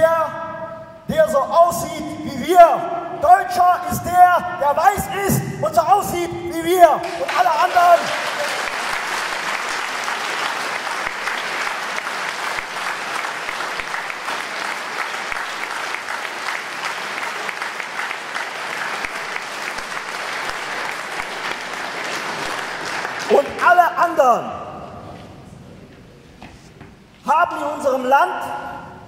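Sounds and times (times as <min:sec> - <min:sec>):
audience applauding: 0:06.9 - 0:23.9.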